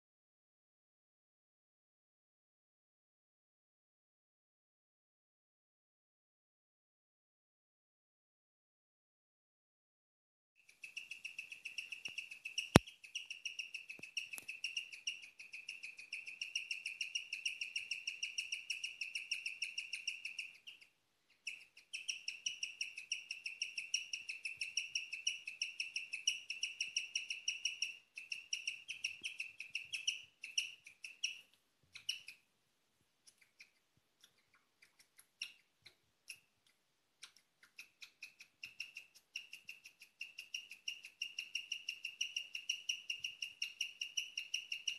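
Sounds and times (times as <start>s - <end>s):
guinea pig chirping: 10.6s - 32.5s, 33.2s - 44.9s.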